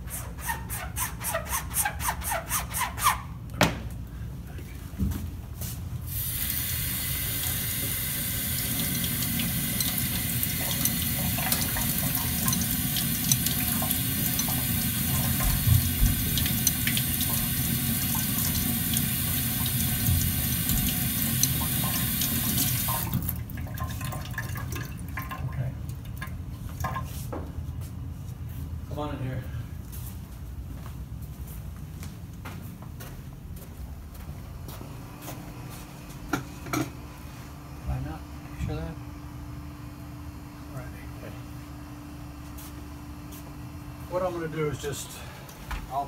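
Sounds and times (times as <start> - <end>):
tap water running into sink: 6.2 - 27.1.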